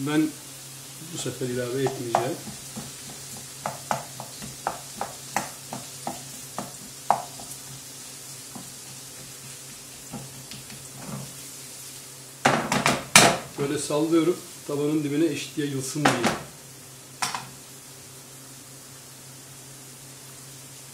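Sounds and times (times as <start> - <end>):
vegetables sizzling: 0.0 - 20.9
wooden spoon tapping a pan: 1.7 - 7.6, 8.5 - 8.8, 10.0 - 10.8, 12.4 - 13.5, 17.2 - 17.5.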